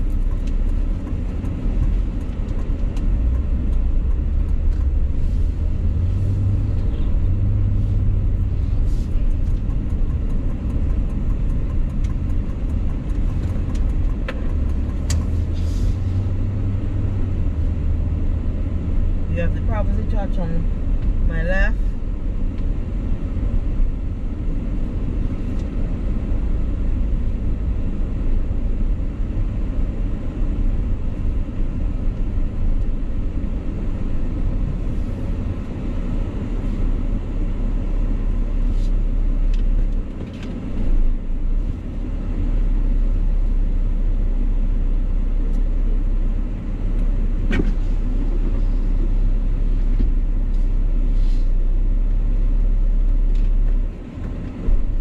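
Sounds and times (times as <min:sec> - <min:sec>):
car driving low rumble: 0:00.0 - 0:55.0.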